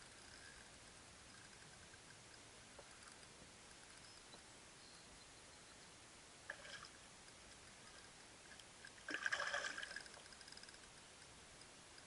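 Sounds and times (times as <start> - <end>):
fishing reel clicking and rattling: 9.9 - 11.0.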